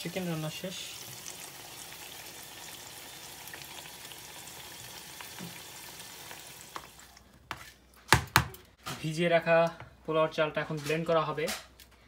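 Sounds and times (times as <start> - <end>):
curry sizzling and bubbling in pot: 0.0 - 7.7.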